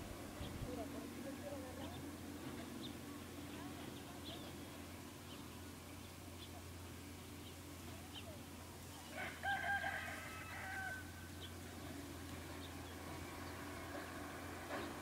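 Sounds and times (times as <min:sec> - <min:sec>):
small birds chirping: 0:00.3 - 0:09.3, 0:11.2 - 0:15.0
rooster crowing: 0:09.1 - 0:11.3.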